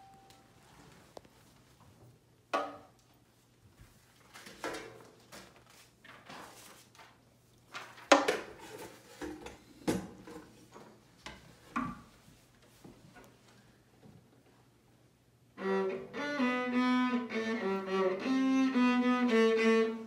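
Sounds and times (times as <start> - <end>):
paper rustling: 5.2 - 8.1.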